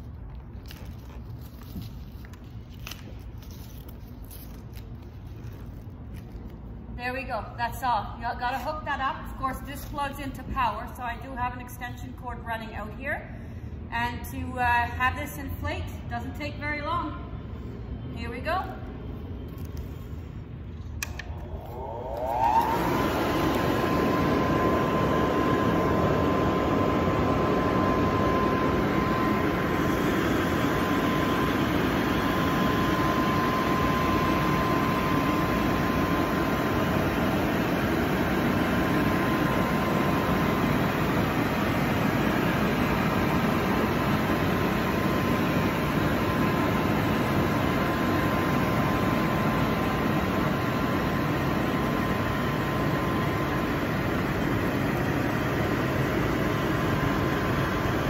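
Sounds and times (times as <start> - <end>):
electric blower motor whine: 21.0 - 58.0.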